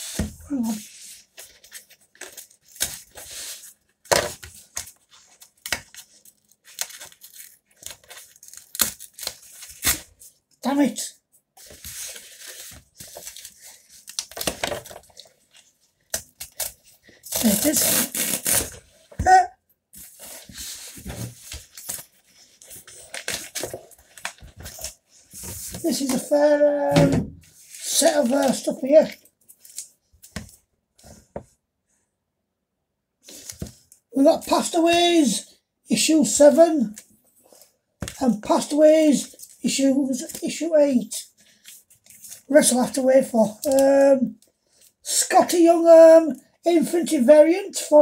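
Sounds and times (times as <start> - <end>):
cardboard tearing: 5.3 - 10.2, 16.2 - 19.2
cardboard strip squealing: 16.5 - 18.8
cardboard rustling and scraping: 20.0 - 26.3.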